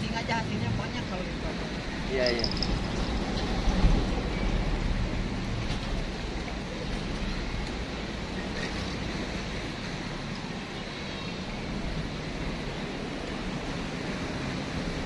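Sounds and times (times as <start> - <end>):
rushing outdoor background noise: 0.0 - 15.0.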